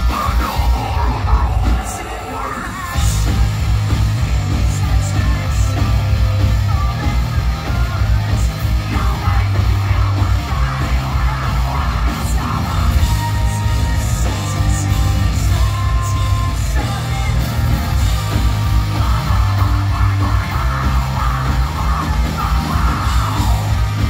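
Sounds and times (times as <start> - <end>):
screamed vocals: 0.0 - 3.4
distorted electric guitars: 0.0 - 24.0
heavy bass: 0.0 - 24.0
pounding drums: 0.0 - 24.0.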